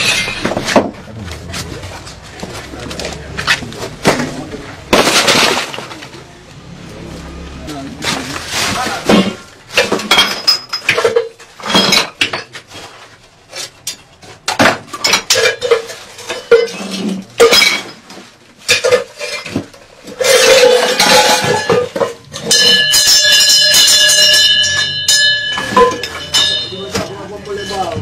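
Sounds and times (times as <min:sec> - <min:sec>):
pots and metal clattering: 0:00.0 - 0:06.2, 0:08.0 - 0:28.0
ringing of several tones: 0:22.4 - 0:28.0.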